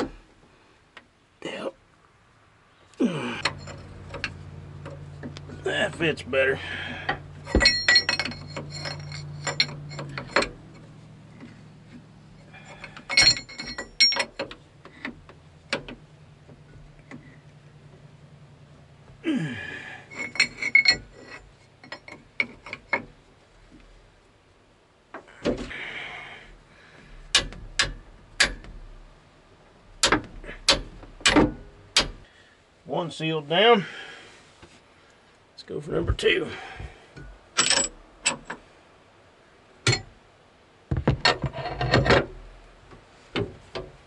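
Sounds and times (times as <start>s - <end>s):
wrench clinking on metal fitting: 3.4s - 4.3s, 7.5s - 10.6s, 12.4s - 14.6s, 20.1s - 23.0s, 37.6s - 38.6s.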